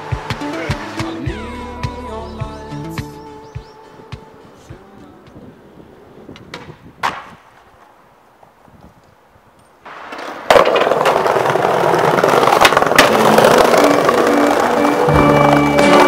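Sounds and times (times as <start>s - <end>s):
skateboard clacks: 0.0s - 1.3s, 6.3s - 8.5s, 9.9s - 16.0s
skateboard wheels rolling on pavement: 0.0s - 2.1s, 4.1s - 16.0s.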